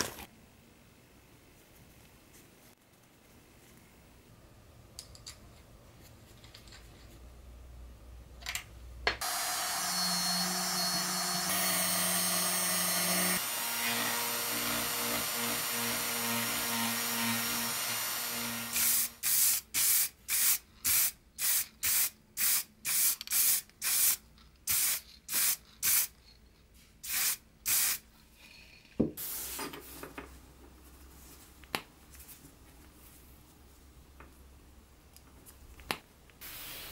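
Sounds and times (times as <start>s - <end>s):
rotary tool motor whine: 9.2s - 15.6s.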